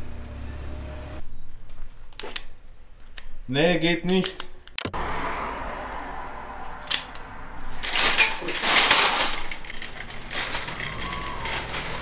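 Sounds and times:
wire trolley rattling: 6.9s - 12.0s.

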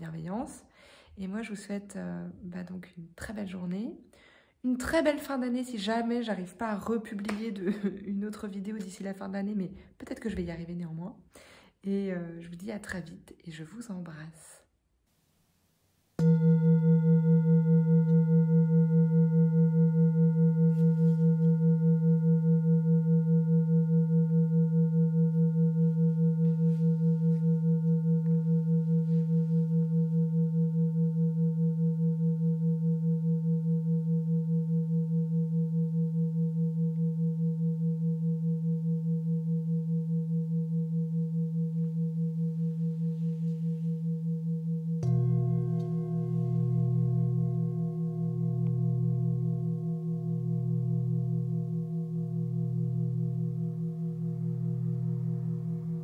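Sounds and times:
singing bowl ringing: 16.2s - 56.0s.

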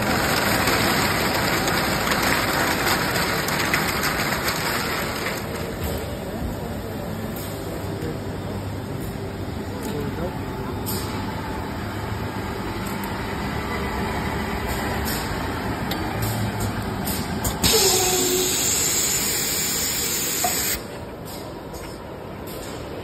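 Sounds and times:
paper slitting machine running: 0.0s - 5.8s
loud hiss: 17.6s - 20.8s.

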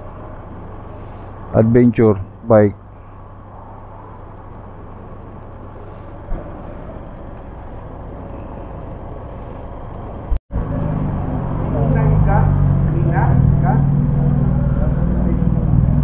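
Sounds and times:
motor vehicles humming: 0.0s - 16.0s
low thump: 6.3s - 7.1s.

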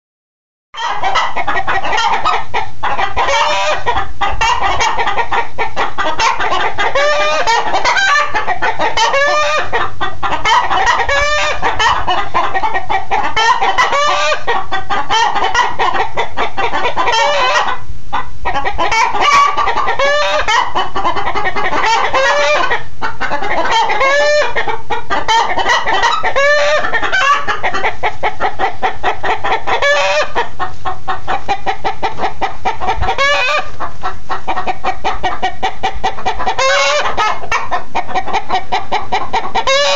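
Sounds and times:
chickens clucking and cackling: 0.8s - 39.9s.

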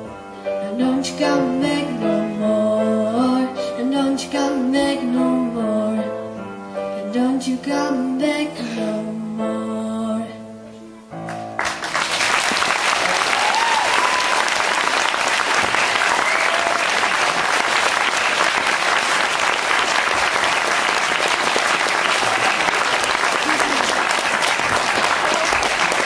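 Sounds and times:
audience applauding: 11.3s - 26.0s.

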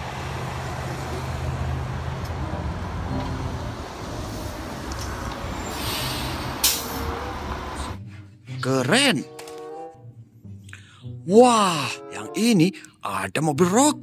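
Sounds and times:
bus engine humming: 0.0s - 8.5s
road noise: 0.0s - 10.8s
pneumatic air hiss: 5.6s - 7.1s.

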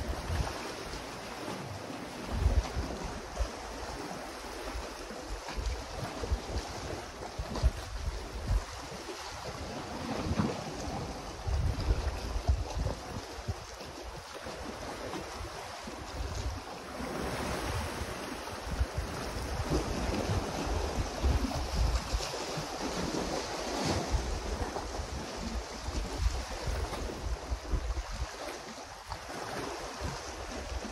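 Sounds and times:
waves splashing against rocks: 0.0s - 30.9s
wind gusting over microphone: 5.6s - 13.8s, 16.1s - 28.3s.

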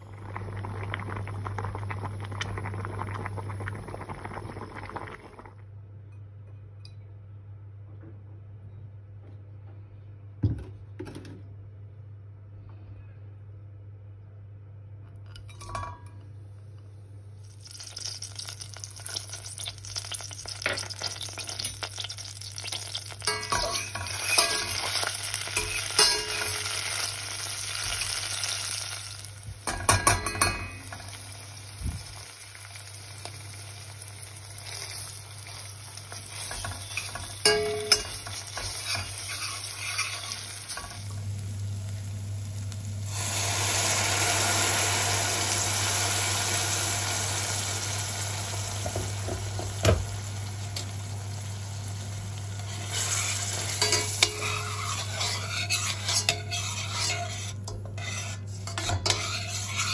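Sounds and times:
peppers sizzling in oil: 17.4s - 59.9s
spatula scraping and knocking pot: 36.1s - 40.9s, 52.9s - 59.9s.

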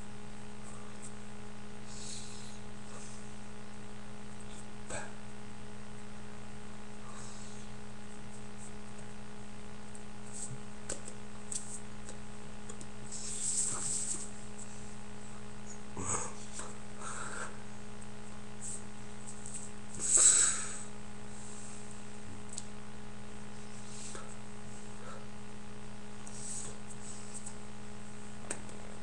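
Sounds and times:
low electrical hum: 0.0s - 29.0s
short breathy hisses: 20.0s - 20.9s.

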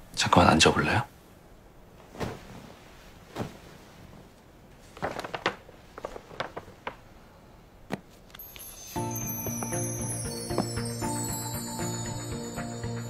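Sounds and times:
paper gift bag rustling: 4.8s - 7.2s.

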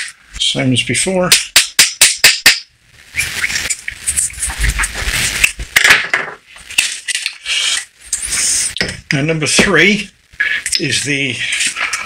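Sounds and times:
metal rubbing and scraping: 3.2s - 5.7s.

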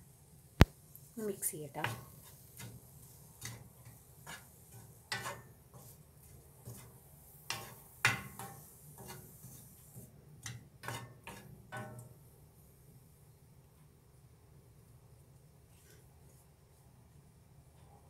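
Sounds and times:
wooden spatula scraping frying pan: 1.8s - 12.1s.

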